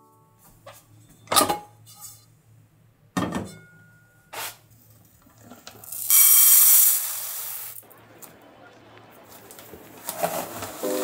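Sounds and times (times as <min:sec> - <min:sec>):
metal pot clunking in sink: 0:03.2 - 0:03.8
dry rice poured into pot: 0:05.8 - 0:07.8.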